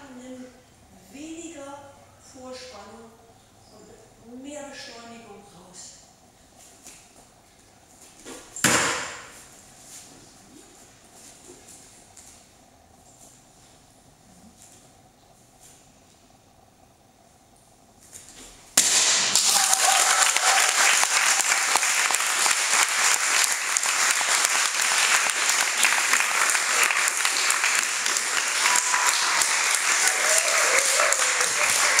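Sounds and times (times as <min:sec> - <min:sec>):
applause and clapping: 0:19.2 - 0:32.0.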